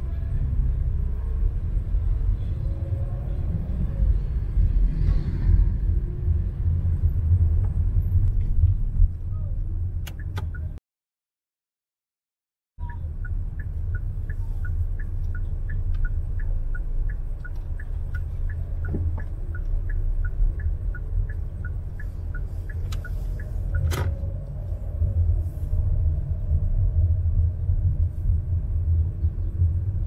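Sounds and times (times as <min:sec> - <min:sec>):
car driving rumble: 0:00.0 - 0:10.8, 0:12.8 - 0:30.0
turn signal ticking: 0:07.0 - 0:10.8, 0:12.8 - 0:25.4.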